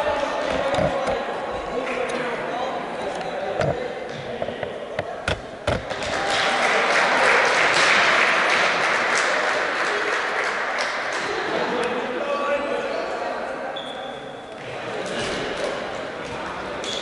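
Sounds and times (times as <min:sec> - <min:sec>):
group clapping in a hall: 0:01.8 - 0:02.1, 0:05.7 - 0:11.9.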